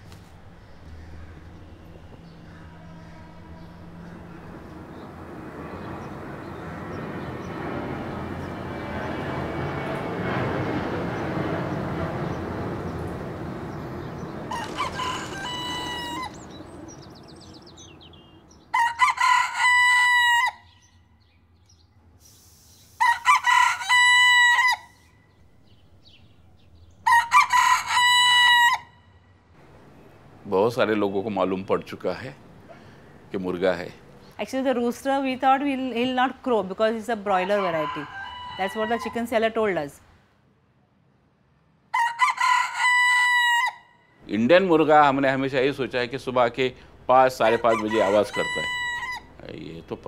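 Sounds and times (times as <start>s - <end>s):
rooster crowing: 14.1s - 16.8s, 18.7s - 20.8s, 23.0s - 25.1s, 27.0s - 29.1s, 37.3s - 39.5s, 41.9s - 44.1s, 47.2s - 49.4s.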